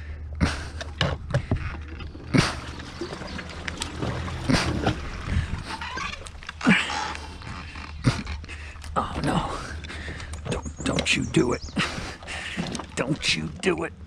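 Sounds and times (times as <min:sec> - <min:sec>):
steady low hum: 0:00.0 - 0:14.0
splashy rustling bursts: 0:02.2 - 0:06.6.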